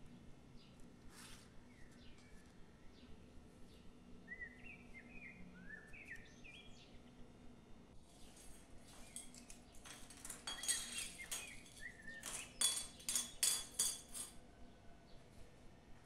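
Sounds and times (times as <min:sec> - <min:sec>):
faint bird chirps: 0:04.2 - 0:07.0
metal badges clinking on wooden table: 0:08.3 - 0:14.4.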